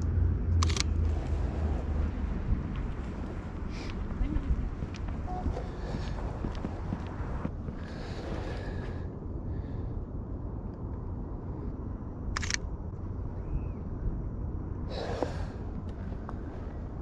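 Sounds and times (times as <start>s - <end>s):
low wind rumble on microphone: 0.0s - 17.0s
camera shutter click: 0.6s - 0.9s, 12.4s - 12.7s.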